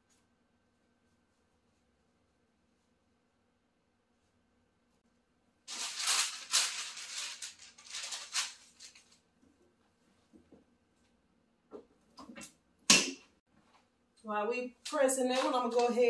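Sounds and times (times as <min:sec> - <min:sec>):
paper rustling and crinkling: 0:05.7 - 0:09.3.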